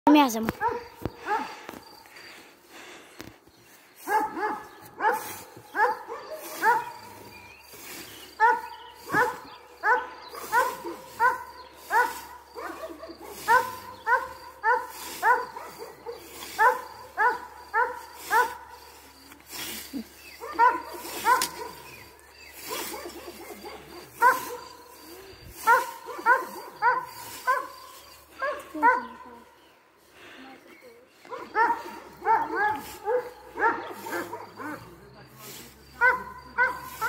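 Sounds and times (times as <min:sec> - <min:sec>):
dog barking: 0:00.5 - 0:01.6, 0:04.0 - 0:07.2, 0:08.4 - 0:18.9, 0:20.4 - 0:29.6, 0:31.2 - 0:35.0, 0:36.0 - 0:37.0
scythe swishing through grass: 0:04.0 - 0:29.0, 0:32.3 - 0:34.6, 0:35.4 - 0:37.0.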